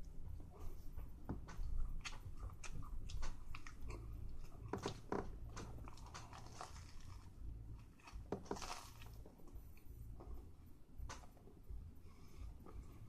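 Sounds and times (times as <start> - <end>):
crunchy sandwich chewing: 1.5 - 9.6.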